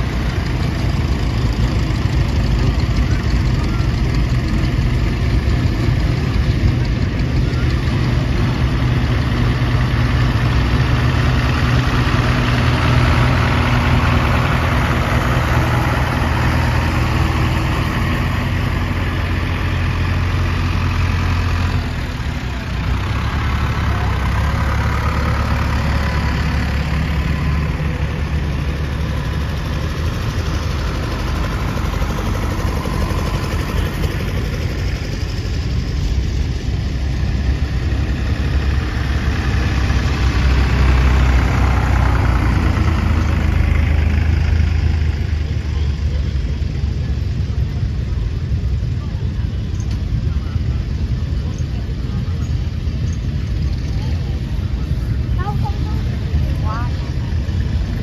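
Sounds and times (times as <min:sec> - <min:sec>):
tractor engines running: 0:00.0 - 0:58.0.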